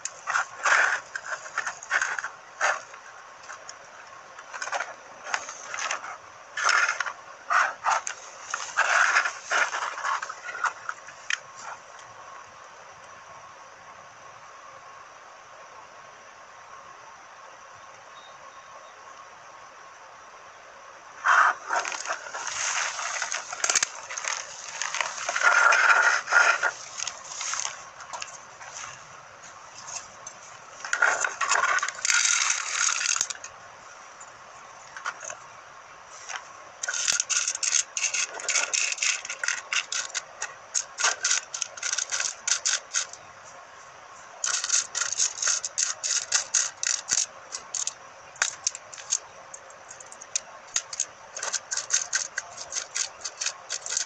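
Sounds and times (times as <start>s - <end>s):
scraping shuffling noise: 0.0s - 3.6s, 4.5s - 11.9s, 21.2s - 32.1s
small components clicking and rattling: 0.0s - 12.1s, 21.3s - 28.4s, 29.8s - 33.6s, 36.2s - 43.2s, 44.4s - 54.0s.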